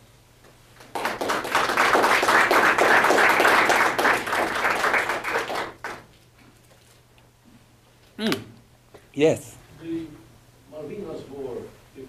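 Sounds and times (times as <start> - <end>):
audience applauding: 0.8 - 6.1.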